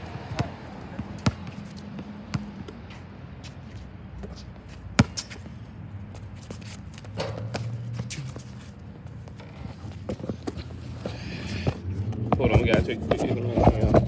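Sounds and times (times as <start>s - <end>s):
basketball bouncing on hard court: 0.3s - 0.6s, 1.2s - 2.8s, 5.0s - 5.5s, 7.1s - 8.4s.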